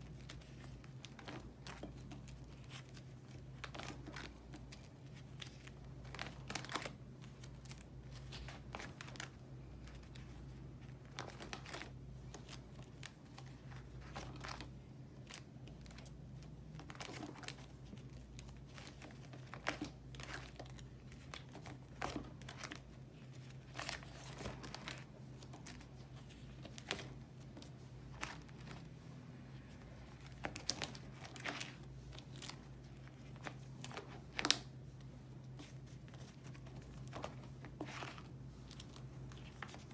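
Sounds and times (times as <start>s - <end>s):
plastic sleeve pages rustling: 0.0s - 39.9s.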